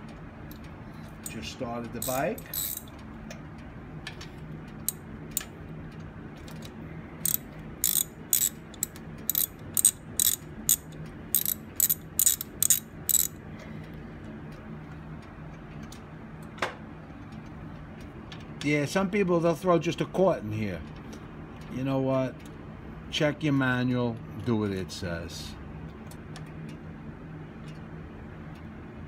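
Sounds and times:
steady low hum: 0.0s - 29.0s
socket ratchet clicking: 2.0s - 2.9s, 7.2s - 13.4s.

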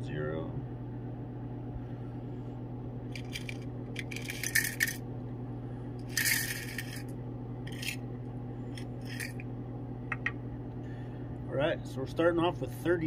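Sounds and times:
metal parts clattering into plastic box: 3.2s - 5.0s, 6.1s - 7.0s, 7.7s - 8.0s.

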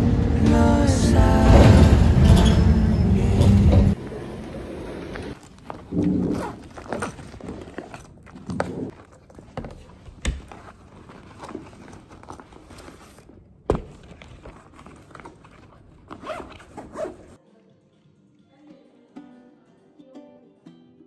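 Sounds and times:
backpack zipper pulled: 5.7s - 8.9s, 16.1s - 17.4s.

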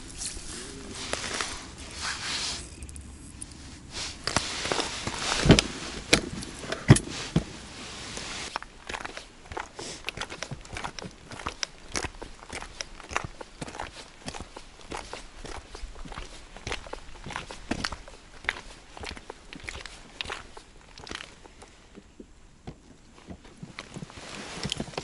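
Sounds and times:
clothing rustle: 0.0s - 10.5s, 23.1s - 25.0s
footsteps crunching on ice: 8.4s - 22.1s.

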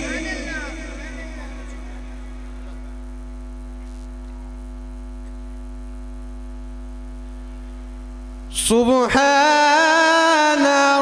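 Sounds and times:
man chanting a recitation: 0.0s - 2.4s, 8.5s - 11.0s
electrical mains hum: 0.0s - 11.0s.

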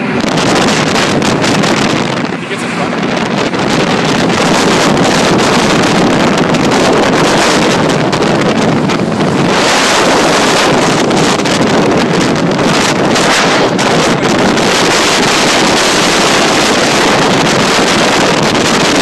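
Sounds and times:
car engine: 0.0s - 19.0s
road noise: 0.0s - 19.0s
wind buffeting microphone: 0.0s - 19.0s.

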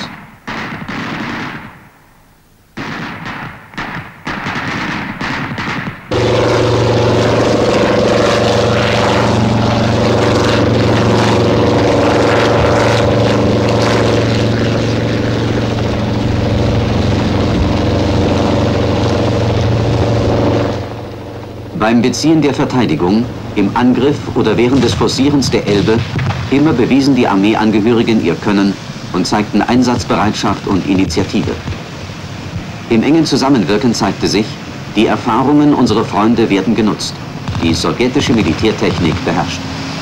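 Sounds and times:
gunshots: 0.0s - 2.0s, 2.8s - 14.4s, 21.8s - 28.4s
small-arms fire bursts: 0.0s - 2.0s, 2.7s - 29.2s
helicopter engine and rotor: 6.1s - 29.3s, 36.6s - 40.0s.

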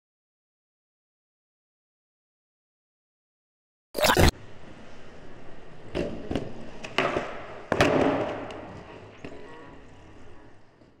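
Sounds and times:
sharp hit sound effects: 4.0s - 4.3s.

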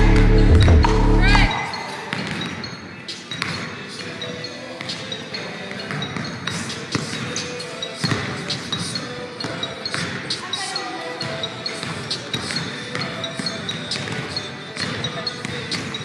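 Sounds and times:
basketballs bouncing on hardwood floor: 0.1s - 3.7s, 8.0s - 10.4s, 11.8s - 16.0s.

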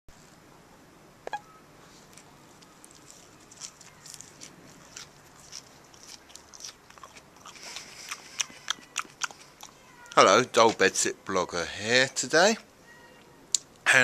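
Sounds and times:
mouth chewing flowers: 1.8s - 11.0s.

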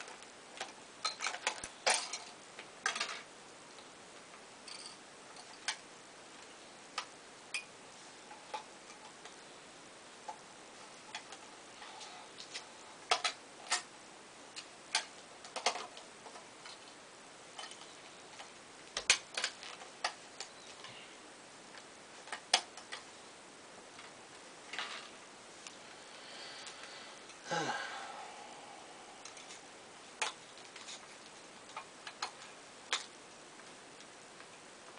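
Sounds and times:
small objects clicking and tapping: 0.0s - 3.9s, 4.6s - 7.7s, 8.3s - 9.4s, 12.4s - 13.9s, 14.5s - 21.0s, 21.7s - 23.1s, 30.2s - 34.9s.

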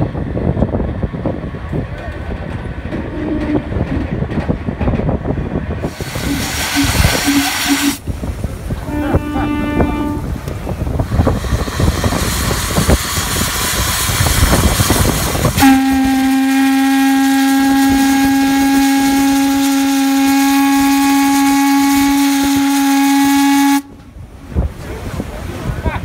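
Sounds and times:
steady rushing noise: 0.0s - 15.9s
steam whistle blast: 5.9s - 8.0s, 15.6s - 24.0s.

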